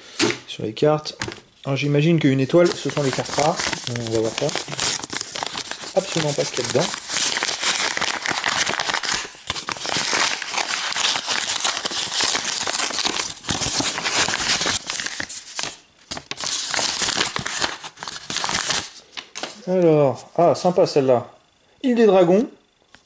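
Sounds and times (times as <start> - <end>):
paper envelope crinkling and rustling: 2.4 - 19.6.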